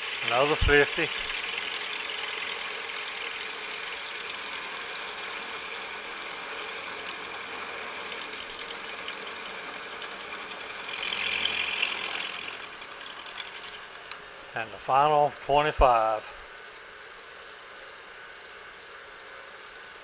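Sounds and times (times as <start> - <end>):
milling machine running: 0.9 - 13.9
ticking of cutting metal: 5.3 - 11.0.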